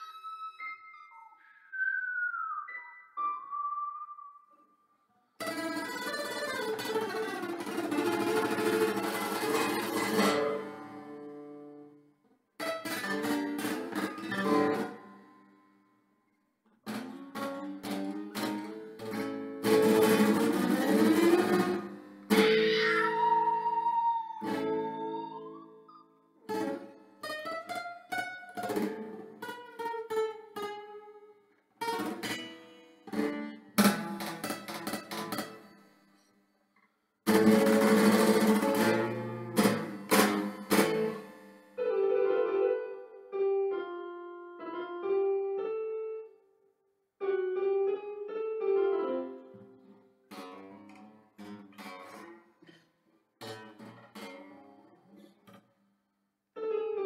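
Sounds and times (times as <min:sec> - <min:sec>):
acoustic guitar strumming: 0:05.4 - 0:11.8, 0:12.6 - 0:15.7, 0:16.9 - 0:25.8, 0:26.5 - 0:31.1, 0:31.8 - 0:35.9, 0:37.3 - 0:41.9, 0:50.3 - 0:52.5.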